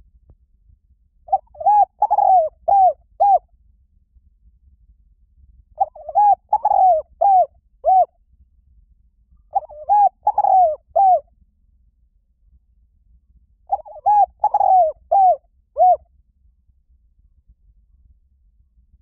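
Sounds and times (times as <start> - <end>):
dove cooing: 1.3 - 3.4, 5.8 - 8.1, 9.5 - 11.2, 13.7 - 16.0.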